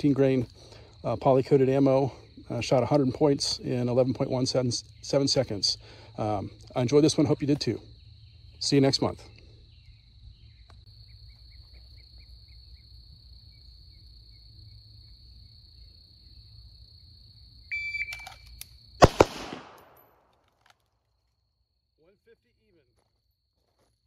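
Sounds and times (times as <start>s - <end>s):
loud pistol shots: 19.0s - 20.2s.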